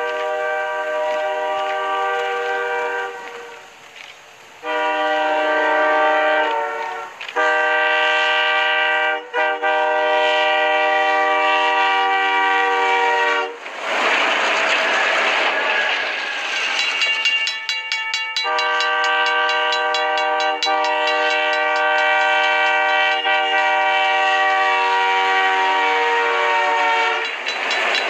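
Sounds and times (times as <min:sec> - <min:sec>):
locomotive air horn blasts: 0:00.0 - 0:03.8, 0:04.6 - 0:13.6, 0:18.4 - 0:27.4.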